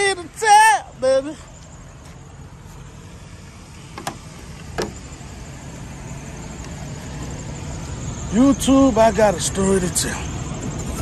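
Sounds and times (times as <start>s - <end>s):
diesel engines idling: 0.0s - 11.0s.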